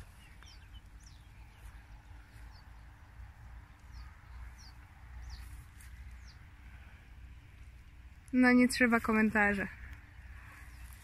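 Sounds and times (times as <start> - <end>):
bird chirping: 0.0 - 6.5.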